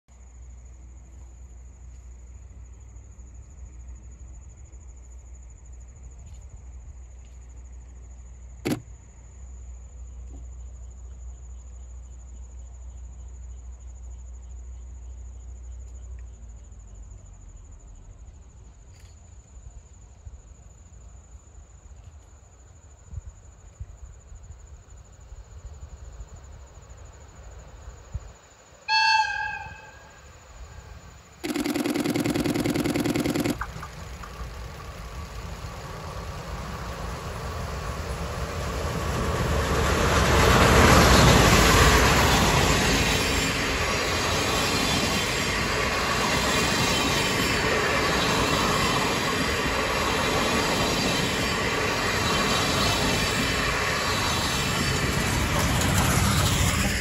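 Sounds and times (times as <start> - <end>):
sharp click: 8.6 - 8.9
locomotive whistle blast: 28.9 - 30.3
insect chirring: 28.9 - 33.9.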